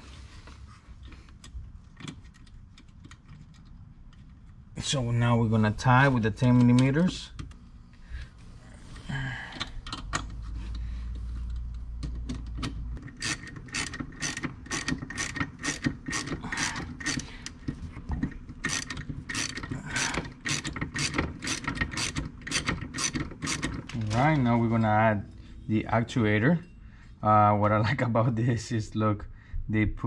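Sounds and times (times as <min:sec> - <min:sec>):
ratchet wrench clicking: 0:13.0 - 0:17.2, 0:18.6 - 0:23.8.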